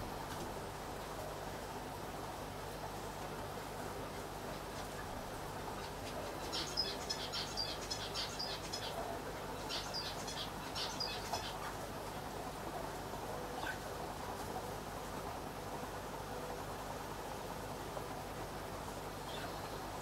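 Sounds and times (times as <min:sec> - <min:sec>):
aquarium air pump and filter hum: 0:00.0 - 0:20.0
small bird chirping: 0:05.8 - 0:09.0, 0:09.6 - 0:11.6.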